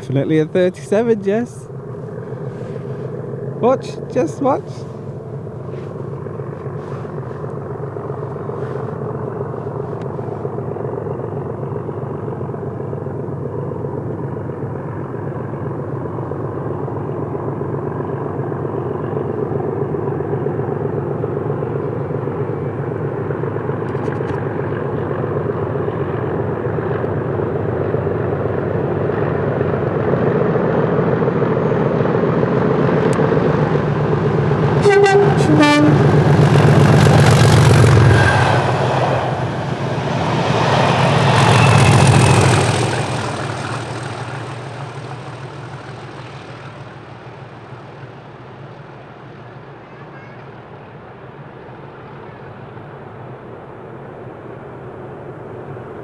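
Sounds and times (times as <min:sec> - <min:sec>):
diesel locomotive engines thrashing: 0:00.0 - 0:56.0
two-tone train horn: 0:34.7 - 0:36.2.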